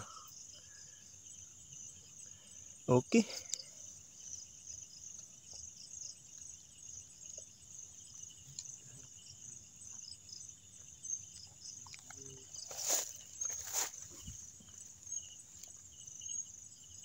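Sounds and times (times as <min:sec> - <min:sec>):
night insects chirping: 0:00.0 - 0:17.0
rustling through grass: 0:12.5 - 0:15.5.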